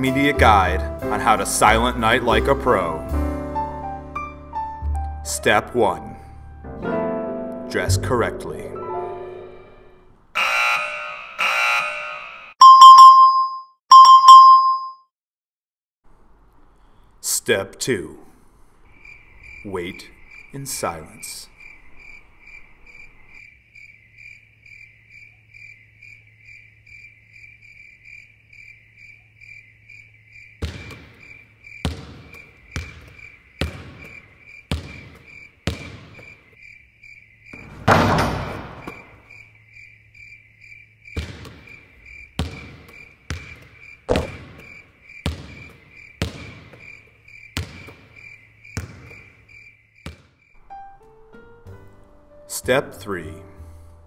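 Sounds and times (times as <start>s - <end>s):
crickets chirping: 18.4s - 50.8s
basketball bouncing on wooden floor: 30.6s - 36.4s, 37.5s - 39.1s, 41.1s - 49.4s, 50.0s - 50.4s.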